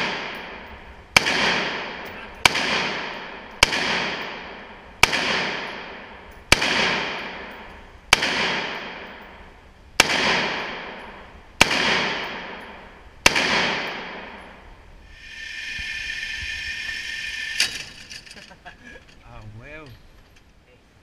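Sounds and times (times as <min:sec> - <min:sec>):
rifle shots echoing indoors: 0:00.0 - 0:14.7.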